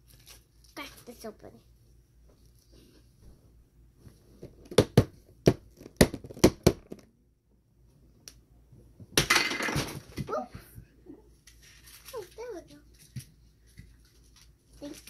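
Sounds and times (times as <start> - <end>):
crackling plastic rustle: 0.0 - 1.6, 11.4 - 15.0.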